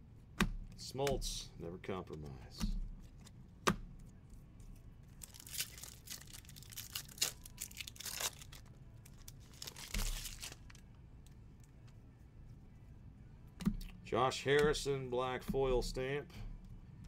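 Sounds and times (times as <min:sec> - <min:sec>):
foil wrapper tearing and crinkling: 0:05.2 - 0:10.8.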